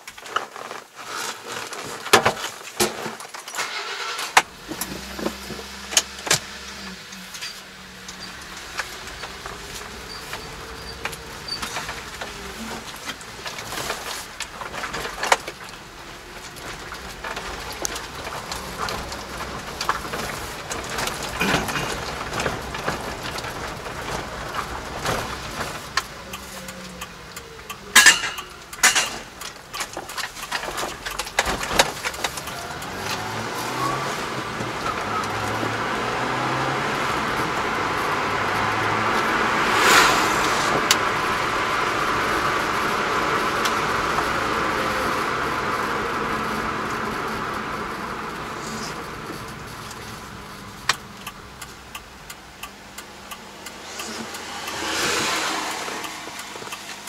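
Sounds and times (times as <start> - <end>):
truck engine from inside cab: 3.5 - 57.0
knocks and rattles: 4.3 - 42.1
tyre and wind hiss: 31.0 - 57.0.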